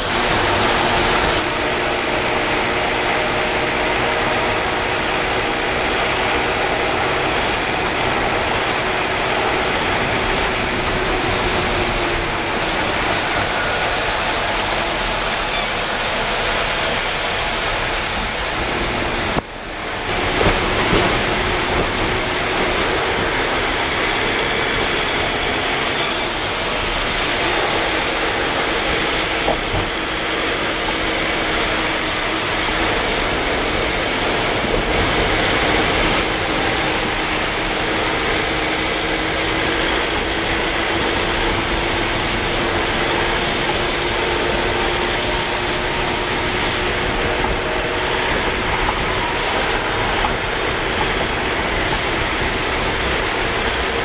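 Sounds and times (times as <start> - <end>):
heavy rain: 0.0 - 54.0
tyre spray on wet road: 9.6 - 23.4.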